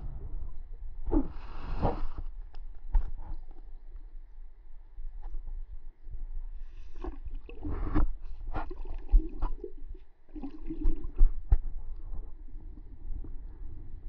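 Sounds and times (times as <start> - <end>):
water gurgling and sloshing: 6.4 - 14.0
bubbly bursts: 7.0 - 11.4.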